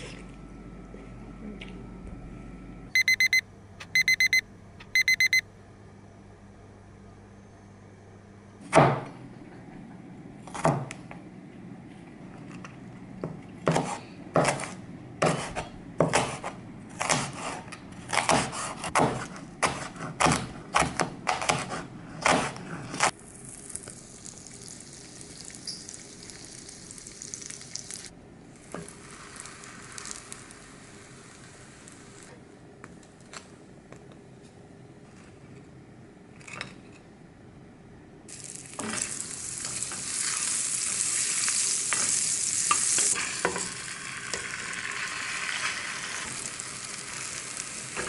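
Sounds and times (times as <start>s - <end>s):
bread sizzling in frying pan: 23.3s - 32.3s, 38.3s - 48.0s.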